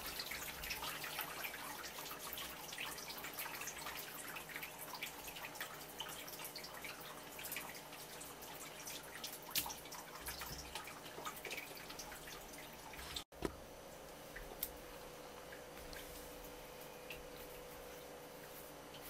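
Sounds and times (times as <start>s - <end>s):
water dripping: 0.0s - 13.2s
faint steady hum: 0.0s - 19.0s.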